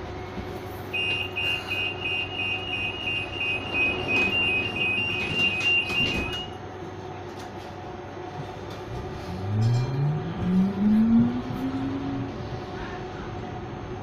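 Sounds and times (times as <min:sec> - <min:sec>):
high double-tone warning beep: 0:01.0 - 0:06.5.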